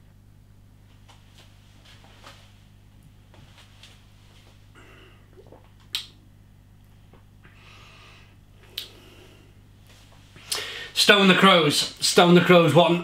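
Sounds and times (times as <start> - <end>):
steady low hum: 0.0 - 13.0
sharp mouth clicks: 8.7 - 9.0.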